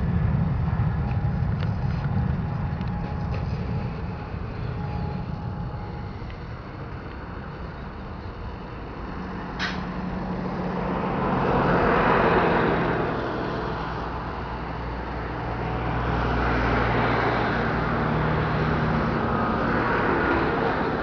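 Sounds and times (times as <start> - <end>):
jet engines at take-off: 0.0 - 21.0.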